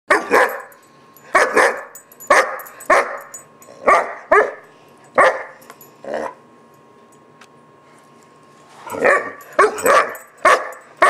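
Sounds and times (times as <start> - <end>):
puppy barking: 0.1 - 0.7, 1.4 - 4.6, 5.2 - 5.6, 8.9 - 10.8.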